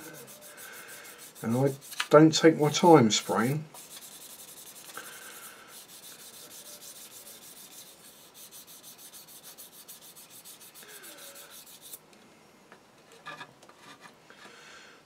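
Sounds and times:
sanding stick rubbing plastic: 0.0 - 12.0.

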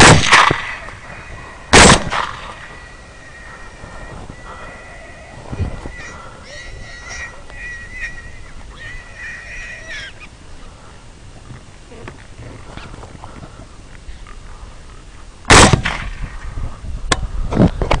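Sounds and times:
rifle shot: 0.0 - 0.9, 1.7 - 2.6, 15.5 - 16.4
high-pitched animal call: 0.6 - 10.4.

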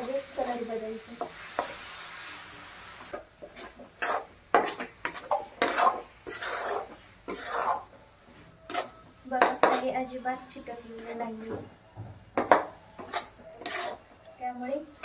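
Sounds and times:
metal spatula scraping a pan: 0.0 - 2.5, 3.1 - 8.0, 8.7 - 11.5, 12.4 - 14.1
steady hiss: 0.0 - 7.8.

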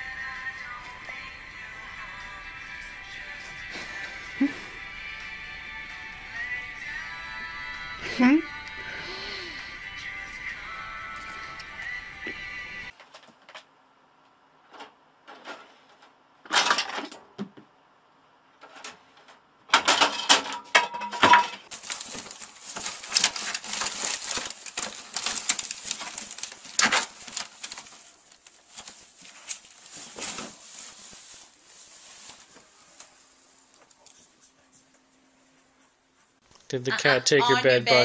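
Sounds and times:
plastic bin liner rustling: 21.3 - 33.2.

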